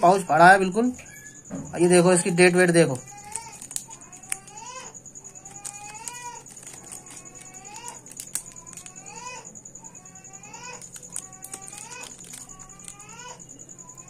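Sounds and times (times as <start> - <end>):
foil wrapper clicks: 3.1 - 4.6, 5.3 - 9.2, 10.7 - 13.1.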